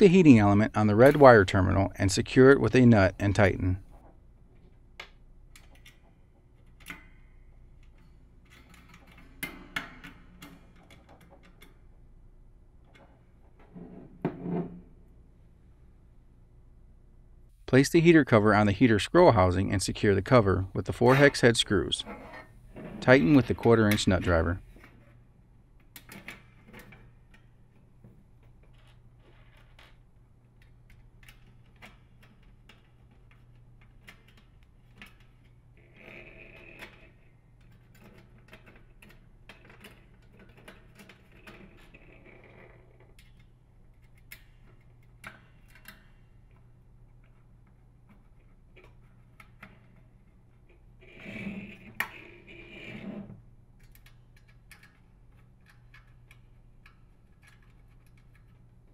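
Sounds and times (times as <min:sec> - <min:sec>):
light clicks and taps of metal: 0:53.8 - 0:58.7.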